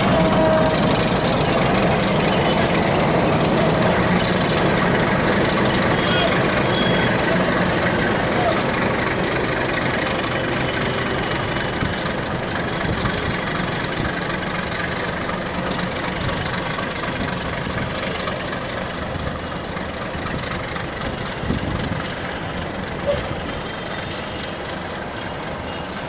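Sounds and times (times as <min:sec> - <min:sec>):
locomotive engine running: 0:00.0 - 0:26.0.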